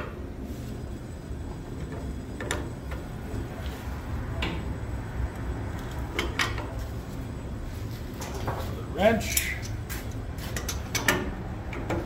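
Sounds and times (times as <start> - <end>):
low machinery hum: 0.0 - 12.0
wrench clinking and scraping on pipe: 9.2 - 9.8.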